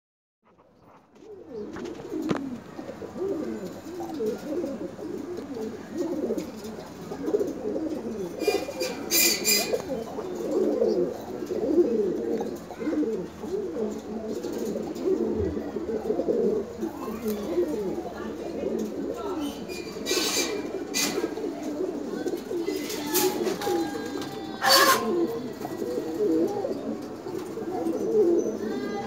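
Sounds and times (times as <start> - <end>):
pigeons cooing: 0.5 - 29.0.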